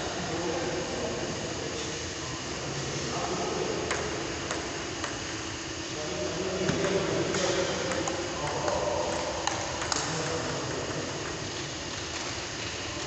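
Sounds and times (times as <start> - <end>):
ping pong ball clicking off paddles: 3.9 - 5.3, 6.7 - 10.4.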